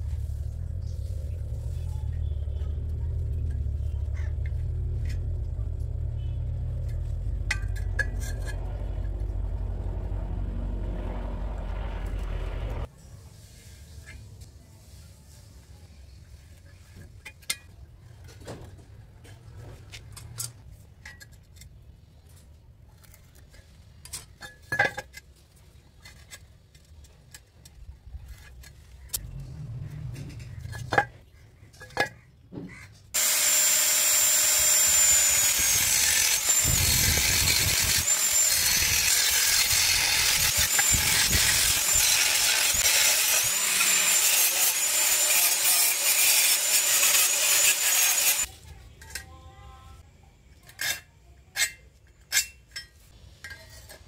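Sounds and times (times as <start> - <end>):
angle grinder cutting steel: 33.2 - 48.5.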